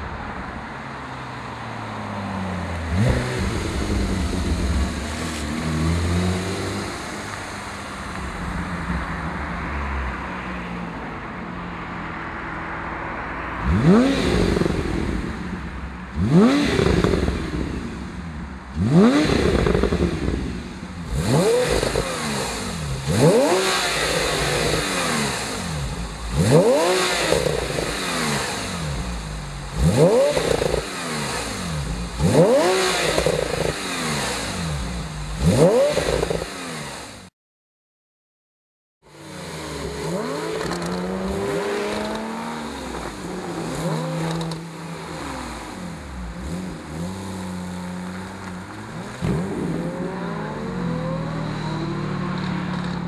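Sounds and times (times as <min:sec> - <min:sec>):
car engine revving: 0:02.5 - 0:10.5, 0:13.5 - 0:37.3, 0:39.1 - 0:53.0
steady engine note: 0:02.9 - 0:07.3.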